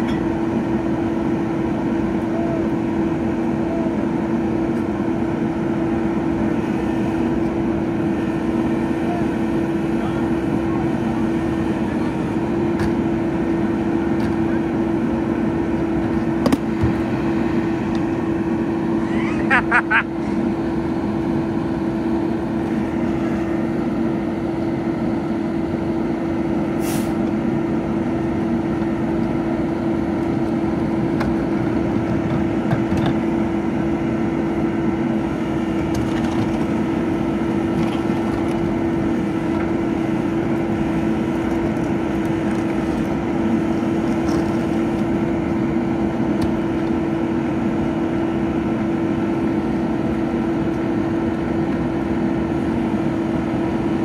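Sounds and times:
garbage truck engine humming: 0.0 - 54.0.

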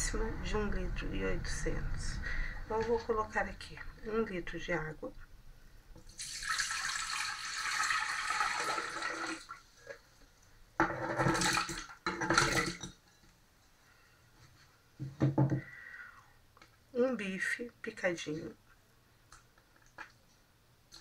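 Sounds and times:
water pouring into metal jug: 6.1 - 9.6, 11.2 - 12.9.

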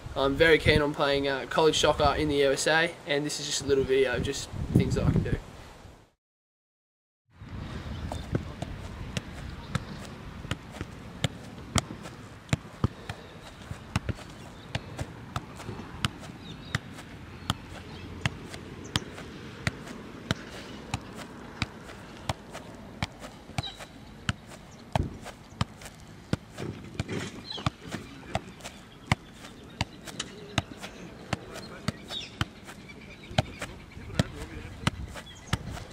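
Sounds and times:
ball kicked with sharp thuds: 8.0 - 35.9.

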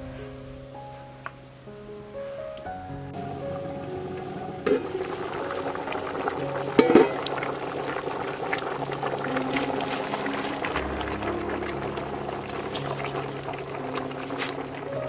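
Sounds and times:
water boiling in pot: 3.1 - 15.0
metal lid clanking: 4.6 - 5.0, 6.8 - 7.4.

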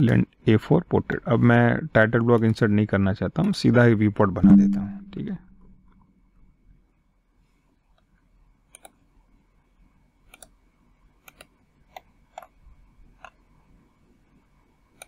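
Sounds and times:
mouse and keyboard clicks: 8.7 - 9.0, 10.3 - 10.6, 11.2 - 12.6.

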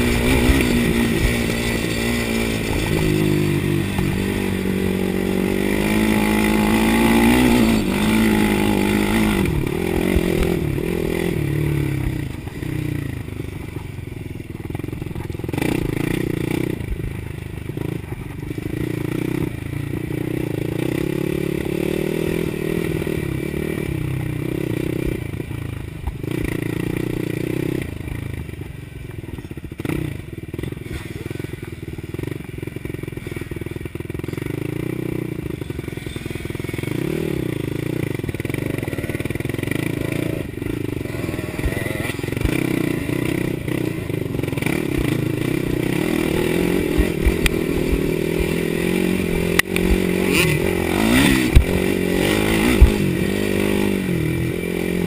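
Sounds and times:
quad engine revving: 0.0 - 13.9, 14.6 - 17.1, 17.7 - 25.4, 33.0 - 55.0.

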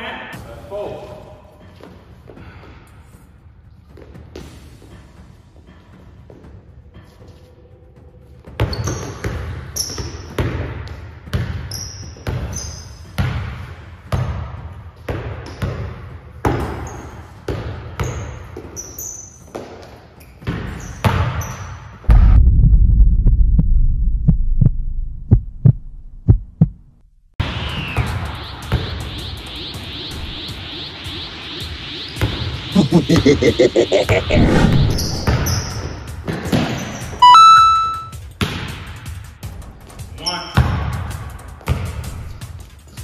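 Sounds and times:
sneakers squeaking on floor: 8.6 - 10.4, 11.6 - 13.2, 18.0 - 21.9
deep bass sound with clicks: 22.1 - 27.4.

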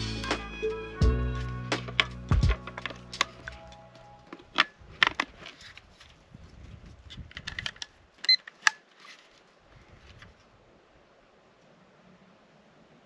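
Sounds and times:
small hard objects clacking: 1.8 - 5.4.

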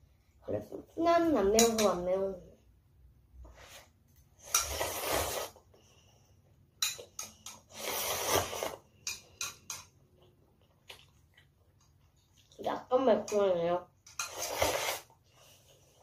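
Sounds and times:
slurping broth from a bowl: 4.4 - 5.7, 7.6 - 9.0, 14.2 - 15.2
slurping noodles: 4.4 - 5.7, 7.6 - 9.0, 14.2 - 15.2.

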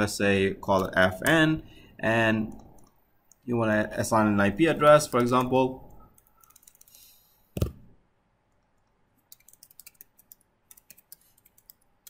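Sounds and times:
keyboard keys clicking: 9.3 - 11.8.

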